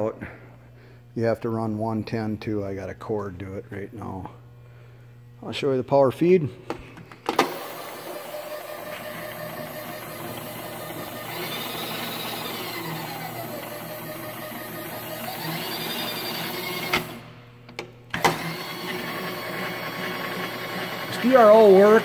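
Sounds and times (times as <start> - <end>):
milling machine motor whine: 7.4 - 17.4, 18.1 - 22.0.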